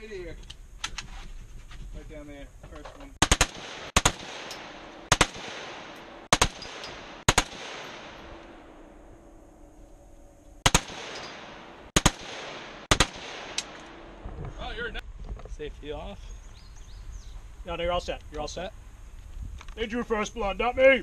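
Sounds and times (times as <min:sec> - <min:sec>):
rifle firing single shots: 0:03.2 - 0:09.0, 0:10.6 - 0:14.2.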